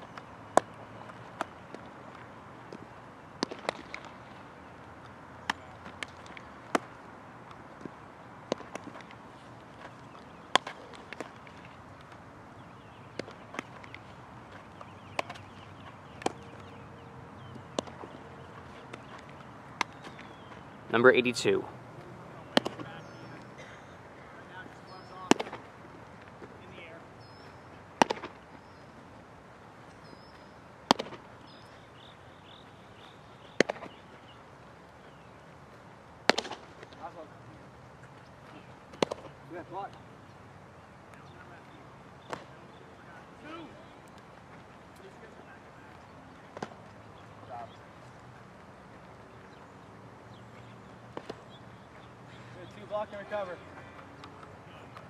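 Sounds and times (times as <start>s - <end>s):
low outdoor background: 0.0s - 55.0s
baseballs smacking into gloves: 0.1s - 4.4s, 5.0s - 12.2s, 12.8s - 20.7s, 22.4s - 23.6s, 25.2s - 26.6s, 28.0s - 28.5s, 30.3s - 31.3s, 33.5s - 34.0s, 36.2s - 37.1s, 38.2s - 40.0s, 42.2s - 42.7s, 46.4s - 47.0s, 51.1s - 52.1s
baseball popping into leather mitt: 3.4s - 4.1s, 7.5s - 9.2s, 9.8s - 11.4s, 16.2s - 16.8s, 17.5s - 18.2s, 18.8s - 20.3s, 22.5s - 22.9s, 25.3s - 25.7s, 28.0s - 28.4s, 30.9s - 31.2s, 33.5s - 34.0s, 36.2s - 36.9s, 38.9s - 39.3s, 51.1s - 51.4s.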